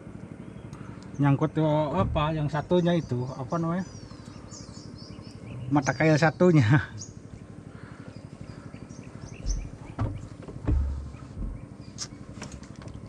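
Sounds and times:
thumps on wooden boat: 1.9s - 2.6s, 9.4s - 11.8s.

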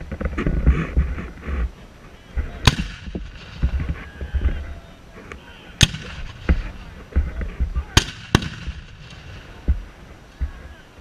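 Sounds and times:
cannons firing: 2.6s - 4.1s, 5.8s - 6.9s, 7.8s - 9.9s.

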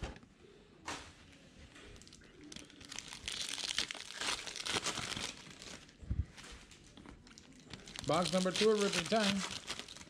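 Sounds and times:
plastic wrapping crinkling and tearing: 2.0s - 10.0s.

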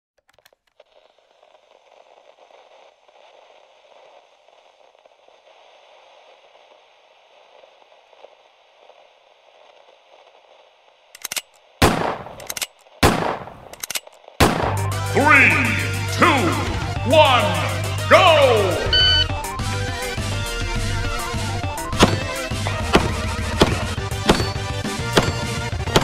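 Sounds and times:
quick clicks: 11.2s - 11.6s.

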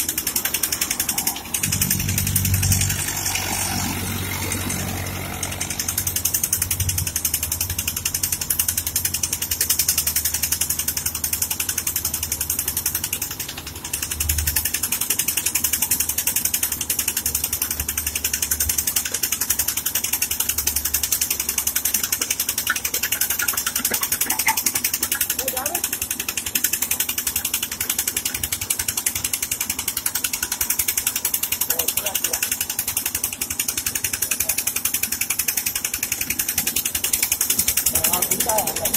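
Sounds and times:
low engine hum: 0.0s - 16.2s
boring rig mechanical clatter: 0.0s - 38.9s.

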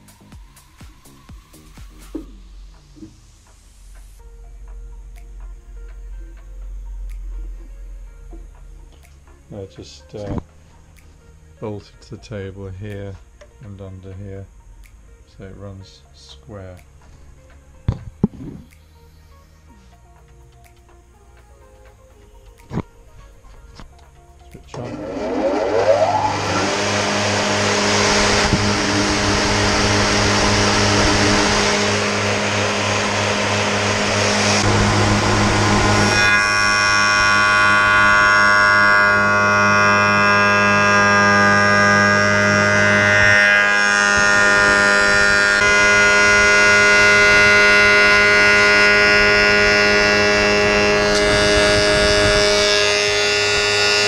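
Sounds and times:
spindle moulder humming: 0.0s - 54.0s
cutter whine cutting wood: 24.6s - 54.0s.

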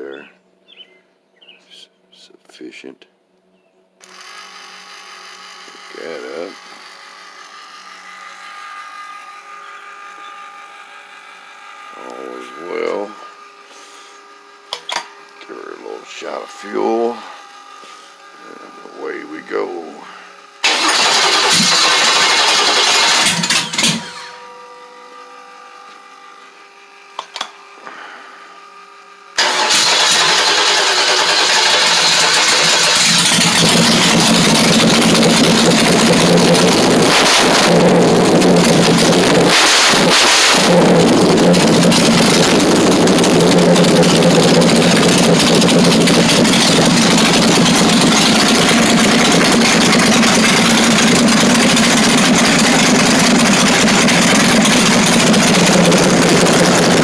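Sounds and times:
engine starting and idling: 4.0s - 7.0s, 20.6s - 24.6s, 29.4s - 57.0s
faint steady whine: 9.2s - 20.8s.

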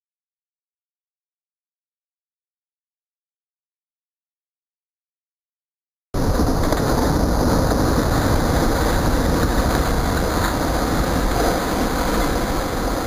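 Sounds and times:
tower collapsing with rumble: 6.2s - 13.0s.

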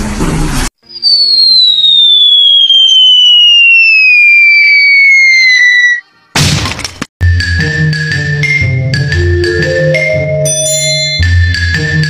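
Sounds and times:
falling whistle: 0.8s - 6.1s.

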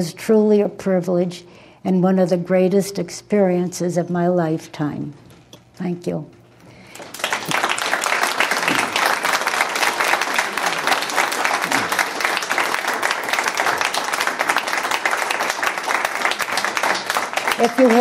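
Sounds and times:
audience applauding: 6.8s - 18.0s.

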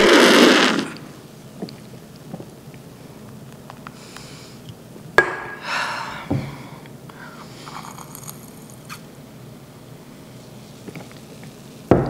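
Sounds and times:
person sipping: 6.8s - 9.1s.

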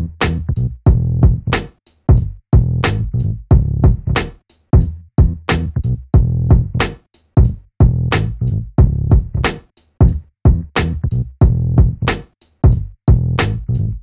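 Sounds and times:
deep bass notes: 0.0s - 14.0s
electronic music with drum-machine beat: 3.5s - 13.8s.

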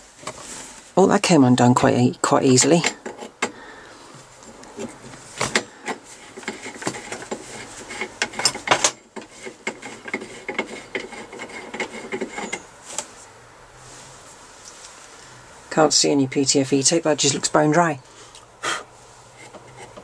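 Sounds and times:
metal threads scraping: 2.5s - 13.0s, 19.2s - 20.0s.

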